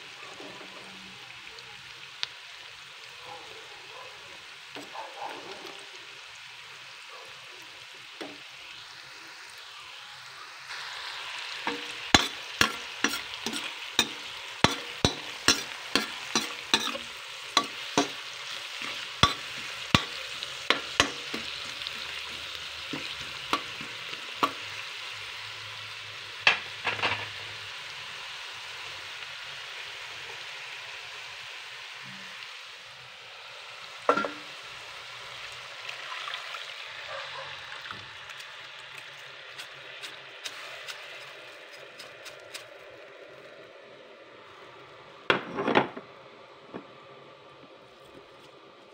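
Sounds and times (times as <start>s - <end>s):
vegetables sizzling in a pan: 0.0s - 45.8s
metal spatula clacking on pan: 11.7s - 18.2s, 18.8s - 21.7s, 22.9s - 24.6s.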